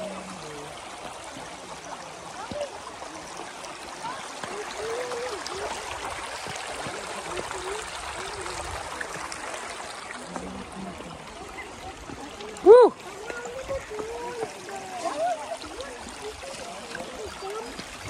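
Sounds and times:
river water rushing over rocks: 0:00.0 - 0:18.0.

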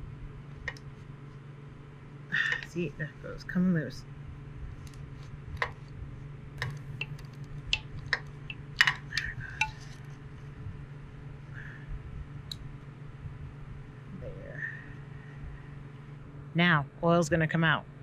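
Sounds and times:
cooler low hum: 0:00.0 - 0:18.0.

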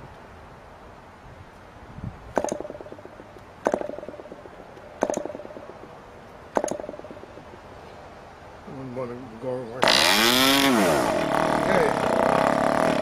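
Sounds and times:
model engine firing briefly: 0:09.8 - 0:13.0.

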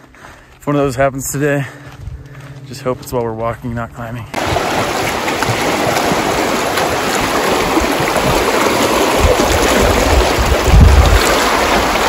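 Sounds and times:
creek rushing over rocks: 0:04.4 - 0:12.0
low rumbling on microphone: 0:07.7 - 0:12.0.

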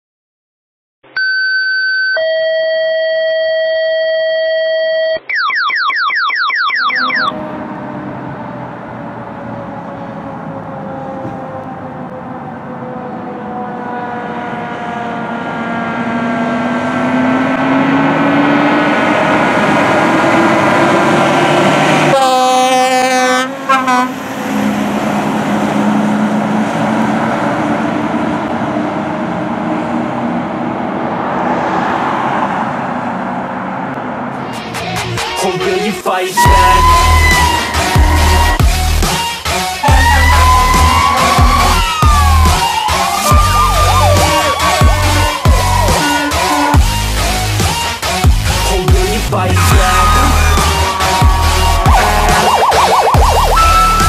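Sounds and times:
two-tone paging alert: 0:01.2 - 0:07.4
road noise: 0:06.8 - 0:54.0
fire truck engine: 0:06.9 - 0:35.4, 0:36.3 - 0:54.0
falling electronic sweeps: 0:36.4 - 0:39.0, 0:48.5 - 0:54.0.

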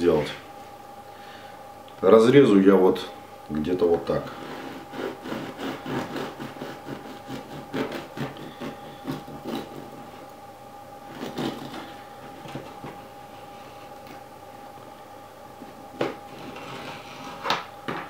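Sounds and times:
bread knife sawing crust: 0:04.3 - 0:10.2, 0:11.1 - 0:12.8, 0:16.3 - 0:17.4.

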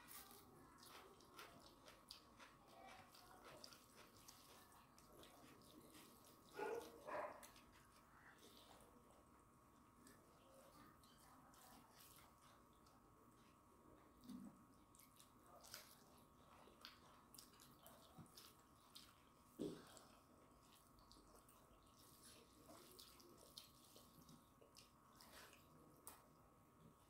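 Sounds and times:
wet eating clicks and smacks: 0:00.0 - 0:08.6, 0:14.2 - 0:26.4.

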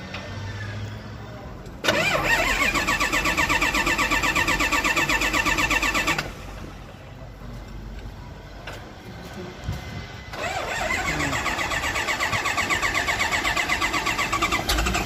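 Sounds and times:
starter motor cranking diesel engine: 0:01.6 - 0:06.8, 0:10.3 - 0:15.0.

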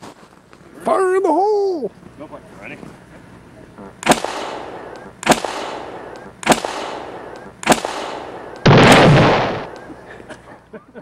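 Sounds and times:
potato cannon boom: 0:08.6 - 0:09.7.

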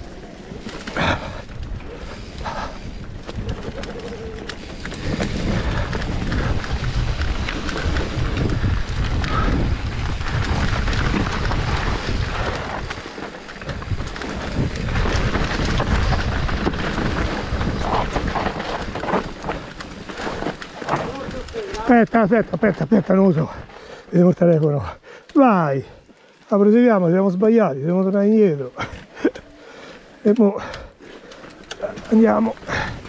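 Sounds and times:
wind rumbling on microphone: 0:00.0 - 0:23.8, 0:30.6 - 0:33.0
bike rattling over bumps: 0:00.0 - 0:25.2, 0:25.8 - 0:33.0
tyres rolling over dirt: 0:00.0 - 0:33.0.

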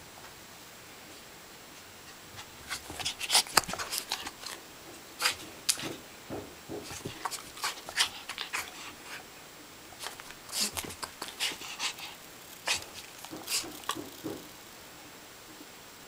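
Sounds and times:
dog barking excitedly: 0:10.0 - 0:14.4.

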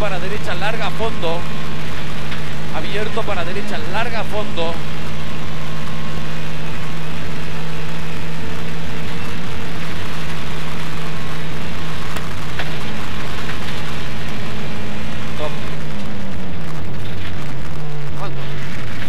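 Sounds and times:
gravel rattling under tyres: 0:00.0 - 0:19.0
rally car engine running: 0:00.0 - 0:19.0.

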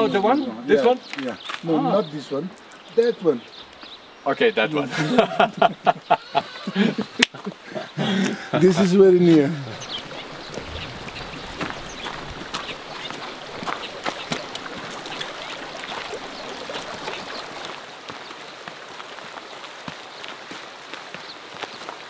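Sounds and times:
footsteps on gravel: 0:01.1 - 0:01.7, 0:09.3 - 0:22.0
water running in stream: 0:01.3 - 0:22.0.

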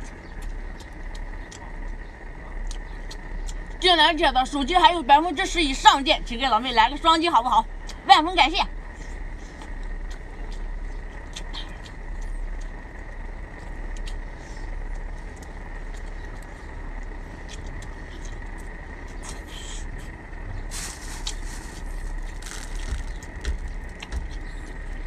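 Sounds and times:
chewing noises: 0:00.0 - 0:04.8, 0:07.6 - 0:08.1, 0:08.7 - 0:25.0
low background rumble: 0:00.0 - 0:25.0
lobster shell cracking: 0:22.1 - 0:24.5.

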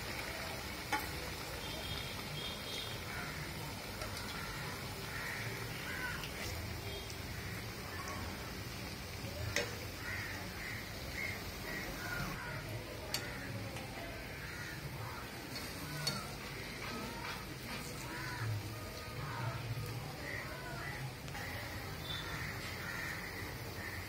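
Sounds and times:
food deep-frying in oil: 0:00.0 - 0:24.0
birds calling: 0:09.2 - 0:24.0.

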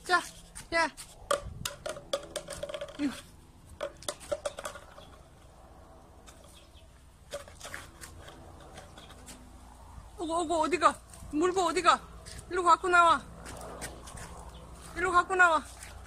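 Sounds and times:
wooden stick knocking on brick paving: 0:00.6 - 0:05.2.

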